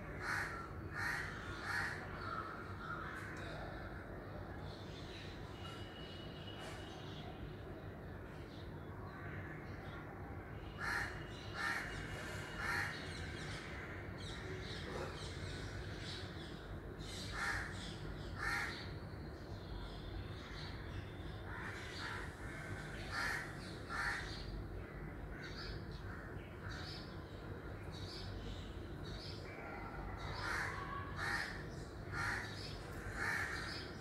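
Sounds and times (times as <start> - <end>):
crows cawing: 0.1 - 3.6, 10.8 - 13.1, 17.3 - 18.9, 21.5 - 26.8, 30.2 - 34.0.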